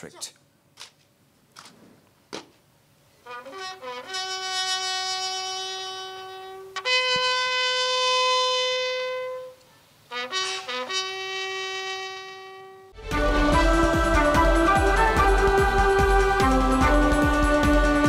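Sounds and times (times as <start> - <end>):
bugle playing slow call: 3.2 - 15.8.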